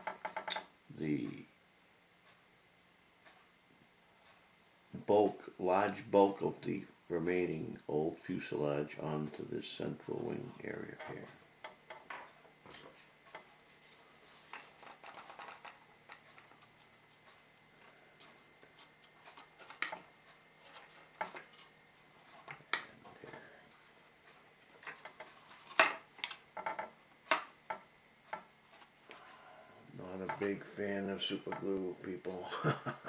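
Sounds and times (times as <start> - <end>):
soft rustling: 12.3 - 26.3
wooden model parts clicking: 14.5 - 16.7.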